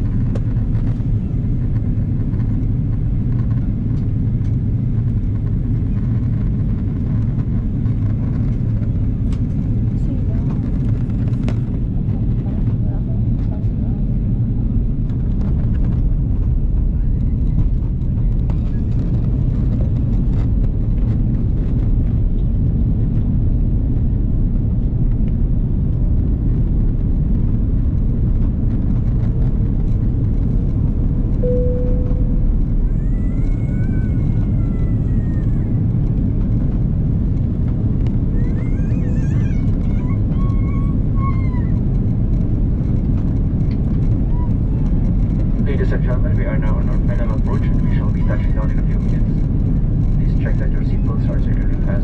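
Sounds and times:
airplane cabin engine rumble: 0.0 - 52.0
faint tone: 31.4 - 32.9.

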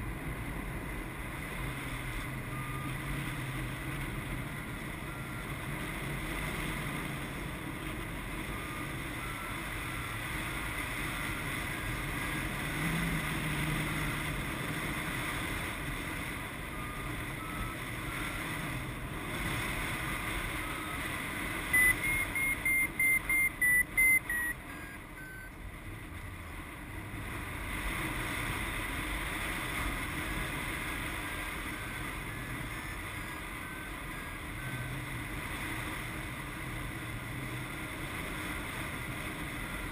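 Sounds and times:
variometer beeping: 2.1 - 3.2, 4.1 - 5.8, 8.4 - 14.6, 16.5 - 18.5, 20.4 - 25.6.

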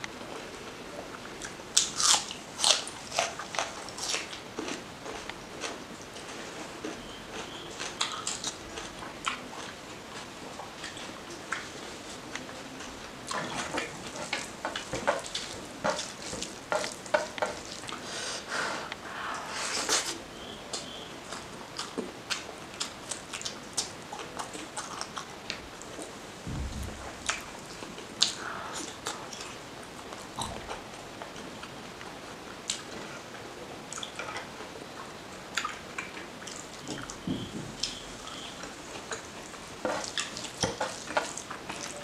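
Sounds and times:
wet chewing and lip smacks: 1.4 - 9.8.

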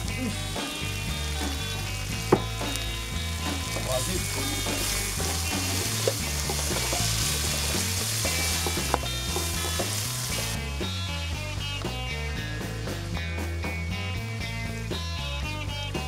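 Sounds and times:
background music with bass line: 0.0 - 16.0
carrots sizzling in hot oil: 0.0 - 16.0.

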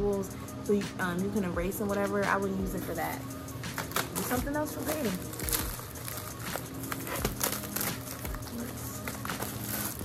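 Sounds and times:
background music: 0.0 - 10.0
plastic packaging crinkling: 3.7 - 10.0.

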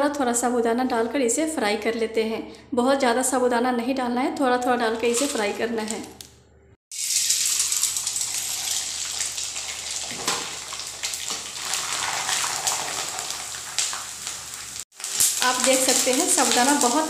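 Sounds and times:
food sizzling in hot oil: 5.0 - 5.6, 6.9 - 17.0.

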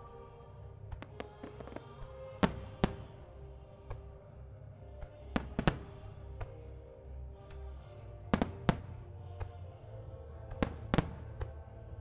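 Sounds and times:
music playing: 0.0 - 12.0
firework shells bursting: 0.9 - 4.0, 5.2 - 6.6, 8.3 - 9.2, 10.6 - 11.6.

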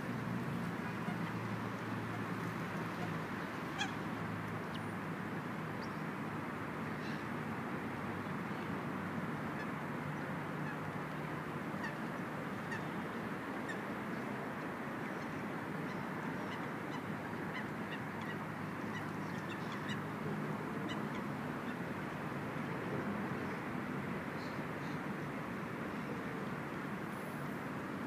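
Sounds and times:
wind and water hiss: 0.0 - 28.0
waterbirds calling: 0.8 - 6.0, 9.5 - 14.3, 15.0 - 21.9.

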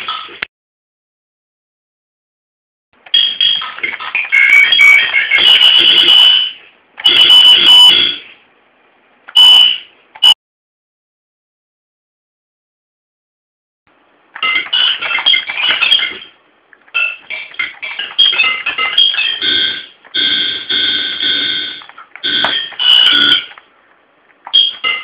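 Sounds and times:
tinny electronic music: 3.0 - 8.3, 14.3 - 23.7.

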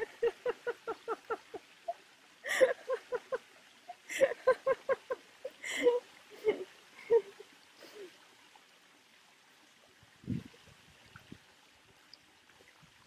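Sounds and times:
waterfall rushing: 0.0 - 3.4, 4.0 - 8.0
woman laughing: 0.0 - 8.0.

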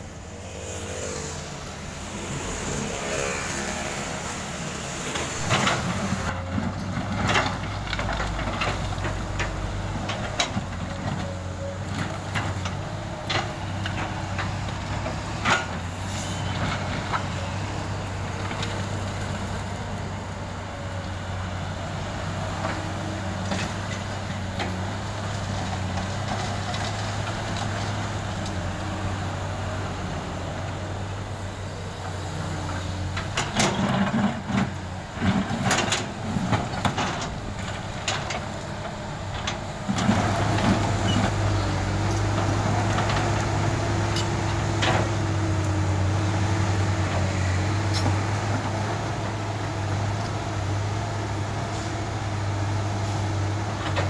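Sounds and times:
excavator diesel engine running: 0.0 - 54.0
asphalt clattering and banging: 33.1 - 45.6.

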